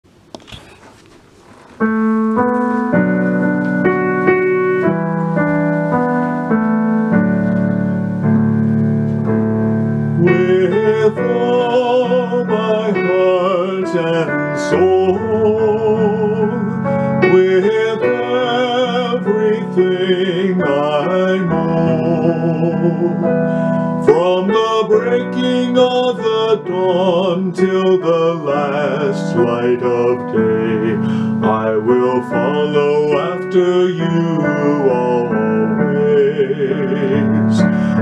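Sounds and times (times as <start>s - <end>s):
slow piano chords: 1.5s - 38.0s
person singing with vibrato: 10.0s - 38.0s.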